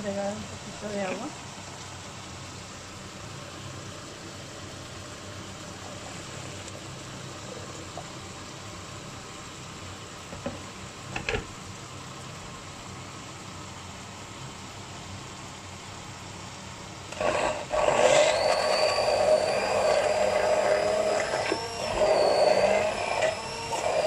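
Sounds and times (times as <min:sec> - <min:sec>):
immersion blender whirring: 0:17.1 - 0:24.0.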